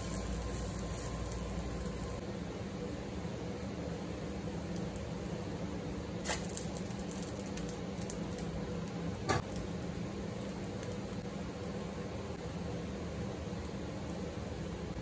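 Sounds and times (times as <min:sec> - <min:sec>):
batter hissing in frying pan: 0:00.0 - 0:02.3, 0:03.2 - 0:08.6.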